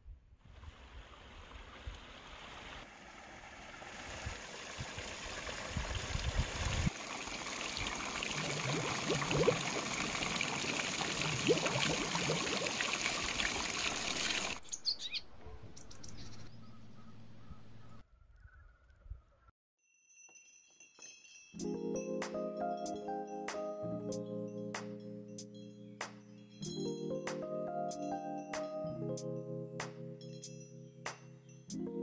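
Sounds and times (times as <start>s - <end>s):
water splashing into stone basin: 2.9s - 14.6s
bird chirps: 14.0s - 19.5s.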